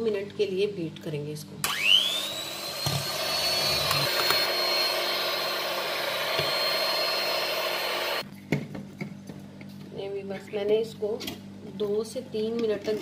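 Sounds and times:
electric hand mixer whipping cream: 1.6s - 8.2s.

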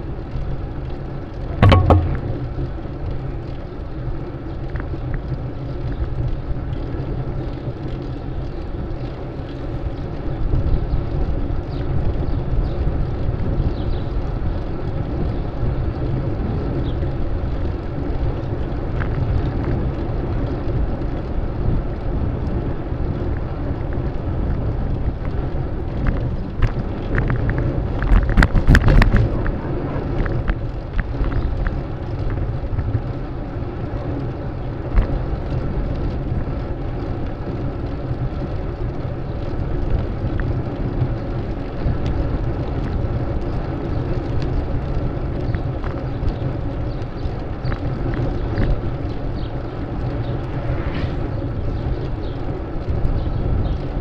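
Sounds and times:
city street traffic: 0.0s - 54.0s
wind rumble on microphone: 0.0s - 54.0s
clattering rattle: 1.5s - 2.5s.

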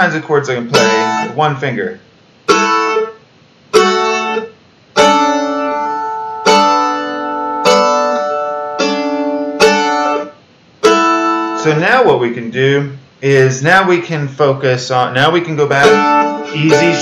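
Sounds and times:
mandolin chords strummed: 0.0s - 1.4s, 2.5s - 12.2s, 15.2s - 17.0s.

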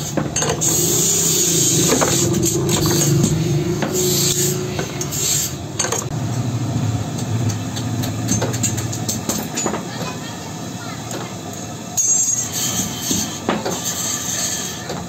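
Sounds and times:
steady low hum: 0.6s - 9.2s.

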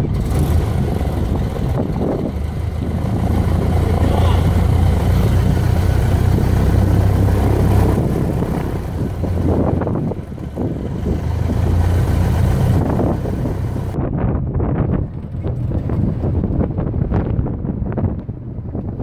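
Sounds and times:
aircraft engine running: 0.0s - 14.0s, 14.8s - 19.0s
wind buffeting microphone: 0.0s - 19.0s.

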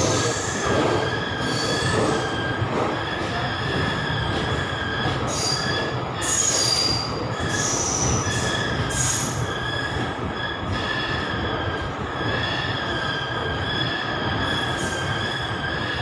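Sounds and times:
train wheels rumbling on rails: 0.0s - 16.0s
wheel squeal: 3.3s - 16.0s.

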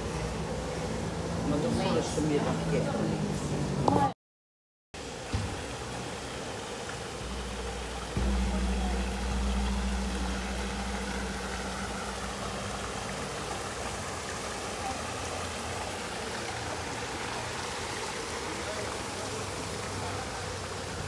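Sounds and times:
vehicle engine humming: 5.8s - 14.4s.

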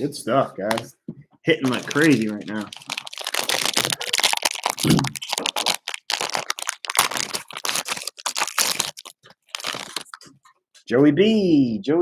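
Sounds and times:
foil wrapper crinkling and tearing: 1.6s - 10.3s.

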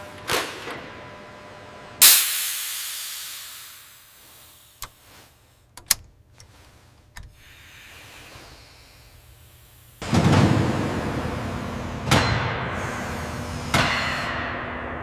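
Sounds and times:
gas hissing from valve: 2.0s - 5.2s, 7.2s - 10.0s.

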